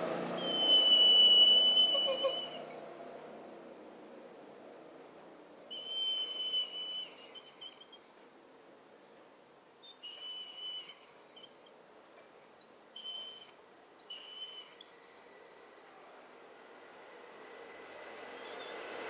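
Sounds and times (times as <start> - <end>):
dog whining: 0.4 - 2.8, 5.8 - 8.0, 12.9 - 15.2.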